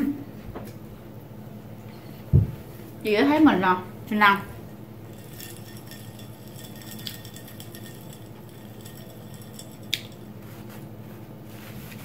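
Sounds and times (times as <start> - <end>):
low hum: 3.8 - 10.8
glass clinking: 4.5 - 10.4.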